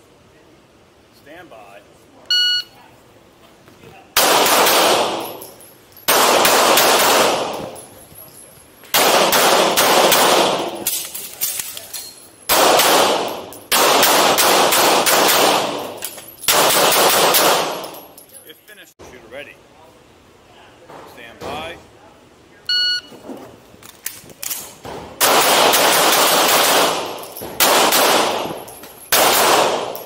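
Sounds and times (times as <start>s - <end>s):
pistol shots with echo: 4.2s - 5.4s, 6.1s - 7.8s, 8.9s - 11.0s, 12.5s - 18.0s, 25.2s - 30.0s.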